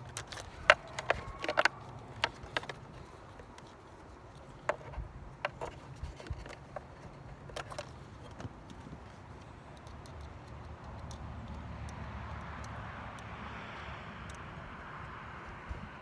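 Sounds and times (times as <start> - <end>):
small screws and plastic parts clicking: 0.0 - 15.8.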